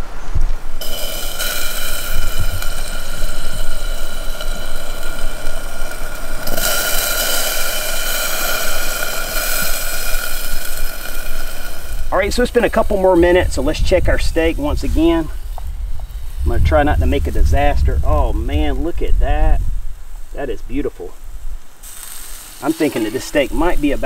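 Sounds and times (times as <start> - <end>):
steak sizzling in a skillet: 0.8 - 16.5, 21.3 - 24.0.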